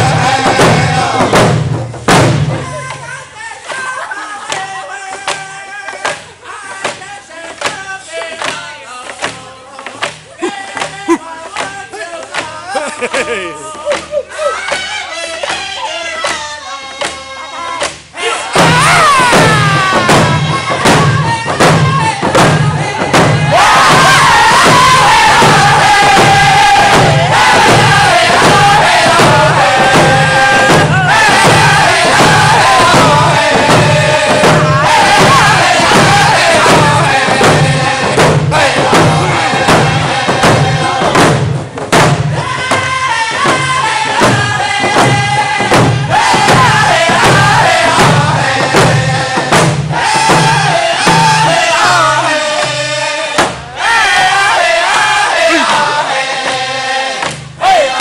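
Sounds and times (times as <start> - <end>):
hand drums beating: 0.0 - 3.2, 17.8 - 56.6
group singing in high voices: 0.0 - 58.0.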